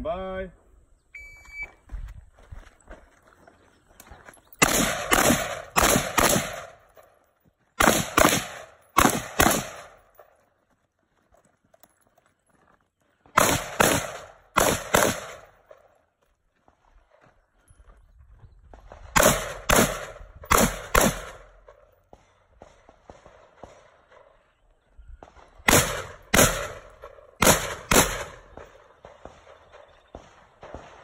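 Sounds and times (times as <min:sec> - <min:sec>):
shot timer beep: 0:01.2 - 0:01.8
pistol shots: 0:04.6 - 0:06.9, 0:07.8 - 0:10.2, 0:13.3 - 0:15.8, 0:19.1 - 0:21.8, 0:25.6 - 0:31.0.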